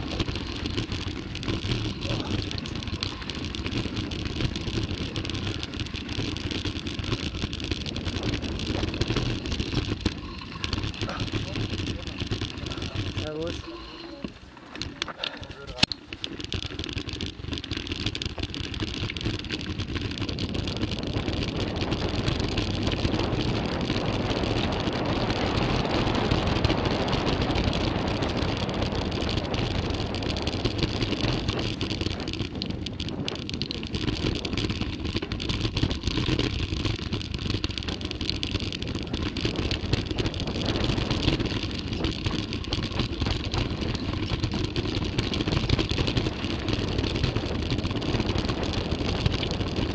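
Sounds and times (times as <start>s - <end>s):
bike rattles and knocks: 0.0s - 49.9s
bike tyres rolling: 0.0s - 49.9s
wind rushing on microphone: 19.2s - 49.9s.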